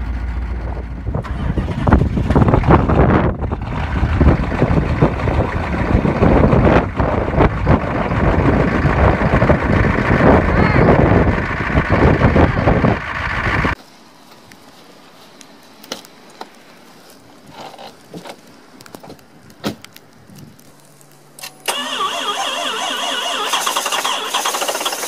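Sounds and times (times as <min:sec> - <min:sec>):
diesel pickup exhaust running: 0:00.0 - 0:13.8.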